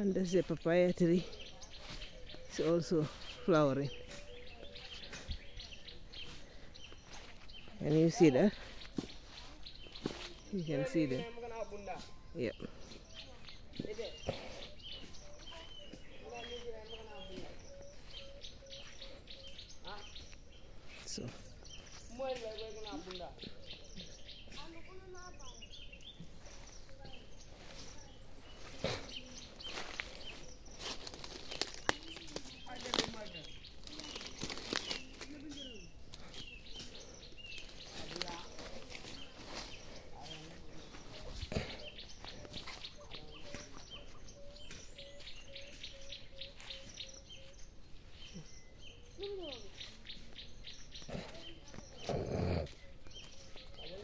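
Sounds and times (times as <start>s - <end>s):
footsteps rustling through grass: 0.0s - 51.9s
bird chirps: 0.0s - 54.0s.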